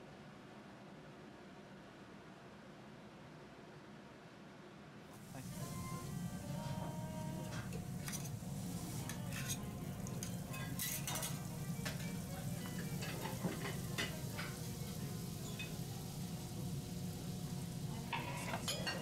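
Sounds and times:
food sizzling on griddle: 5.2 - 19.0
steady low hum: 5.2 - 19.0
metal spatulas scraping griddle: 8.0 - 11.4, 18.1 - 19.0.

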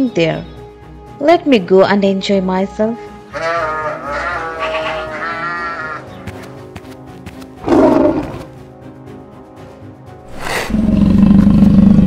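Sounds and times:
background music: 0.0 - 12.0
sheep bleating: 3.3 - 6.1
tiger growl: 7.6 - 8.5, 10.3 - 12.0.

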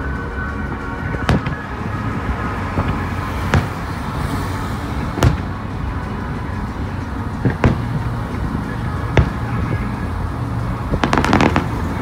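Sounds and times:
car road noise: 0.0 - 12.0
firework shells bursting: 11.0 - 12.0.

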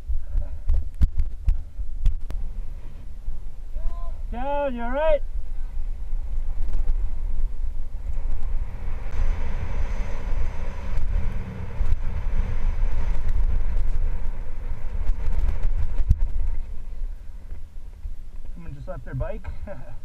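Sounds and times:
wind buffeting microphone: 0.0 - 20.0
bike tyres hissing on gravel: 5.2 - 18.4.

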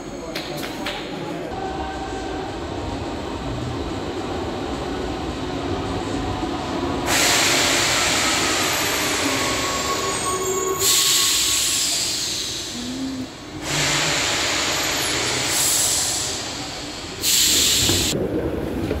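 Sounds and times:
train low rumble: 1.2 - 19.0
compressed-air hiss: 7.1 - 8.6, 10.8 - 12.9, 13.6 - 18.2.

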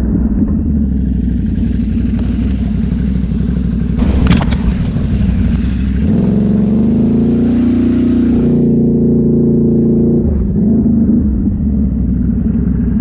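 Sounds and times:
quad bike engine running: 0.0 - 13.0
burst of noise with sharp clicks: 4.0 - 6.3.

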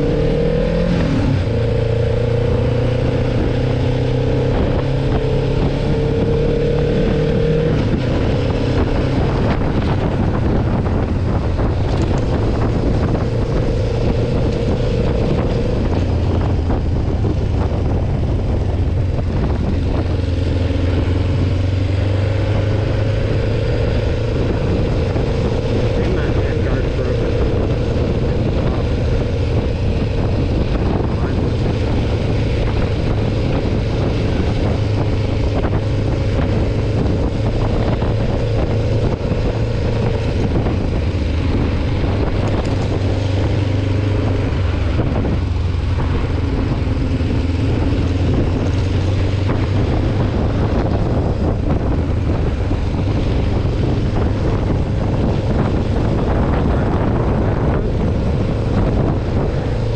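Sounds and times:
motorcycle engine running: 0.0 - 59.9
rushing noise: 0.0 - 59.9.

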